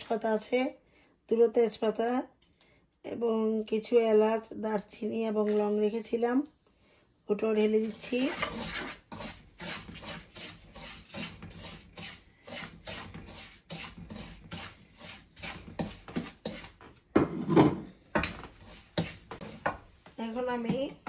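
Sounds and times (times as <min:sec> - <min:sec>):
wooden spoon scraping a pan: 0:00.0 - 0:00.5, 0:05.3 - 0:20.9.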